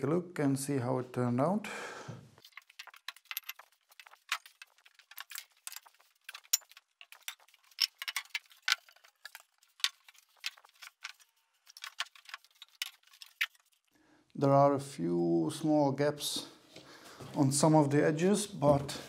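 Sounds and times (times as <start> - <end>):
plywood panels handled: 2.4 - 13.5
steel weights clinking and knocking: 5.1 - 9.0.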